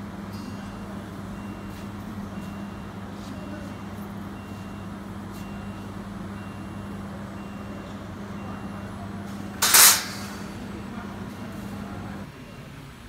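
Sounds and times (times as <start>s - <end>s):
low electrical hum: 0.0s - 12.9s
faint high beeps: 0.3s - 9.6s
short loud hiss: 9.6s - 10.3s.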